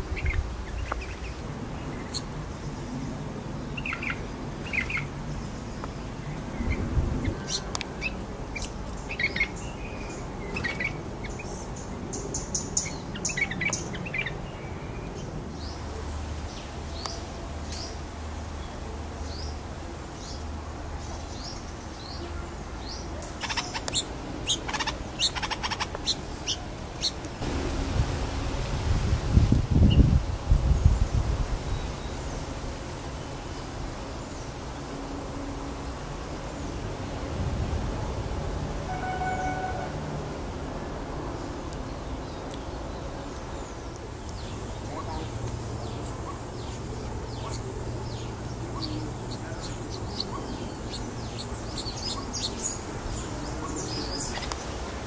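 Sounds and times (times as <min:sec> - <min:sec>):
bird chick chirping: 0:00.1 - 0:02.3, 0:23.3 - 0:27.2, 0:44.4 - 0:54.6.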